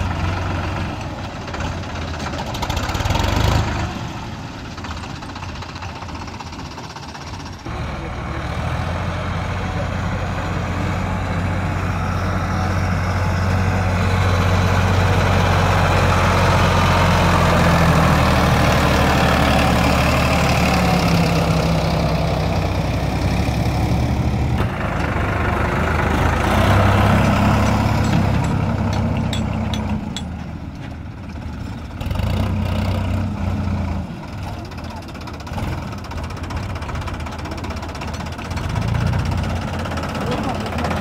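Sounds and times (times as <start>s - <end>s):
tractor diesel engine running: 0.0s - 41.0s
sharp clicks and knocks: 27.2s - 31.0s.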